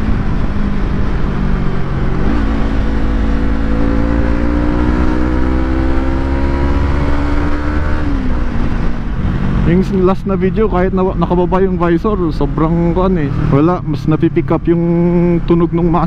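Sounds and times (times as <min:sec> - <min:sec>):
motorcycle engine accelerating: 0:00.0 - 0:10.5
low wind rumble: 0:00.0 - 0:16.0.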